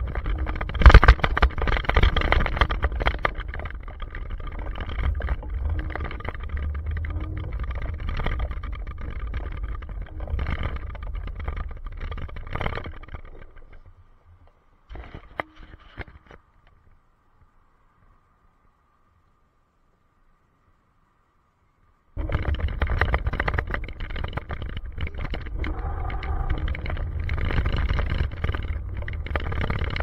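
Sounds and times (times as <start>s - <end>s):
wind buffeting microphone: 0.0s - 14.1s, 22.2s - 30.0s
camera handling rumble: 0.0s - 16.7s, 22.2s - 30.0s.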